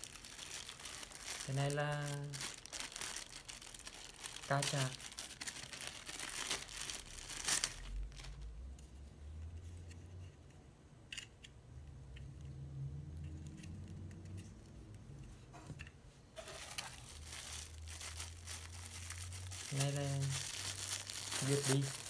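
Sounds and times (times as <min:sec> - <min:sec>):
plastic bag crinkling: 0:00.0 - 0:08.4, 0:16.4 - 0:22.0.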